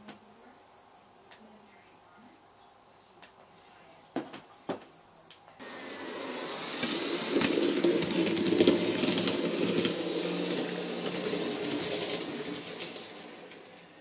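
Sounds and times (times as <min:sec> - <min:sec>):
model train motor whirring: 0:05.6 - 0:14.0
wheels clicking on track: 0:05.6 - 0:14.0.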